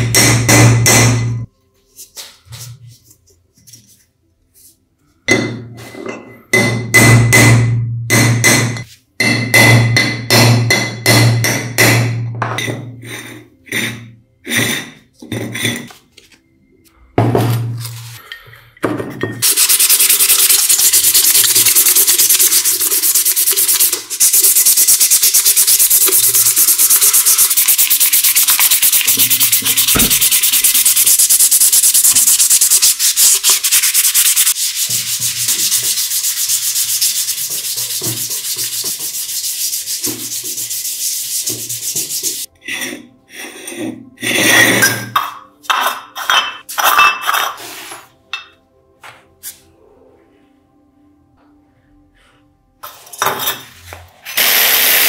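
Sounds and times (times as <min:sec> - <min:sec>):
scratchy sanding of brass: 0:19.4 - 0:42.5.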